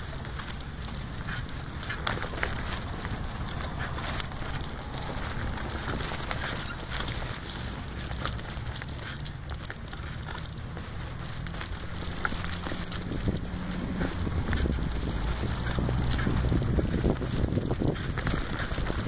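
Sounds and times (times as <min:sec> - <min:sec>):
bicycle rolling over grass and leaves: 0:00.0 - 0:19.0
crackling clicks: 0:00.0 - 0:19.0
wind rumble on microphone: 0:00.0 - 0:19.0.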